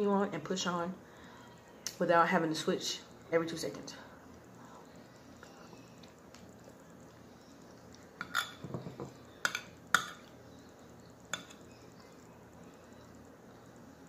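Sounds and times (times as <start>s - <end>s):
metal spoon clinking on plate: 8.2s - 10.2s.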